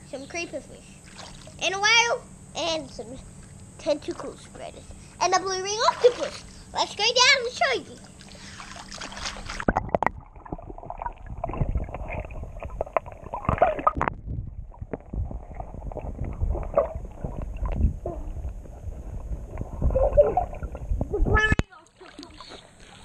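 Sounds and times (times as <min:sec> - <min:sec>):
water movement clicks: 0:08.0 - 0:15.1, 0:21.5 - 0:23.0
bubbles: 0:08.0 - 0:23.0
underwater rumbling: 0:08.1 - 0:23.0
underwater splash: 0:08.2 - 0:21.1.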